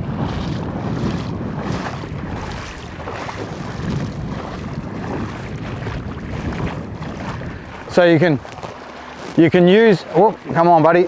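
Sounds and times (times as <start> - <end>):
water splashing around legs: 0.0 - 11.0
wind rumbling on microphone: 0.0 - 11.0.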